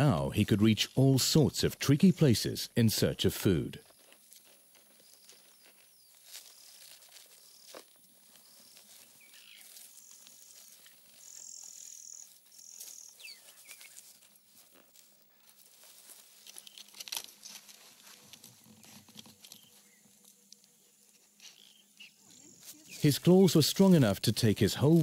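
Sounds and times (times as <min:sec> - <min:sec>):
insects trilling: 0:03.8 - 0:17.0
claws scratching rock and leaves: 0:03.8 - 0:23.2.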